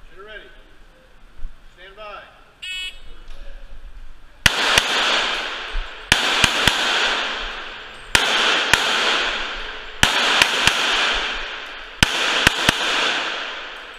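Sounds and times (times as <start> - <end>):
pistol shots echoing indoors: 4.4 - 13.9.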